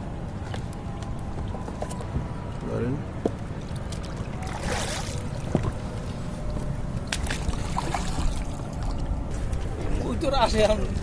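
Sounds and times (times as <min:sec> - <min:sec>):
steady low rumble: 0:00.0 - 0:11.0
water splashing against boat: 0:03.4 - 0:11.0.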